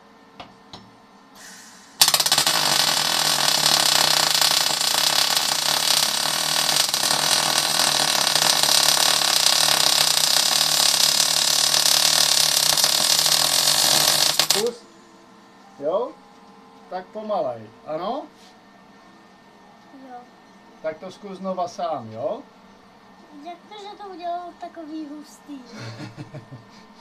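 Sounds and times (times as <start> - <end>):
welding arc crackling hiss: 1.4 - 14.8.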